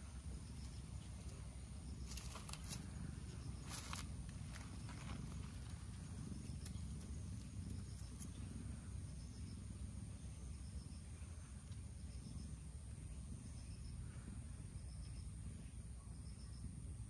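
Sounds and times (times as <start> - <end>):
cat purring: 2.8 - 10.4.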